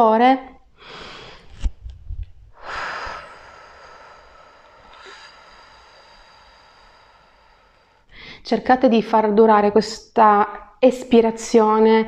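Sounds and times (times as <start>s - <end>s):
woman exhaling slowly: 2.5s - 8.4s.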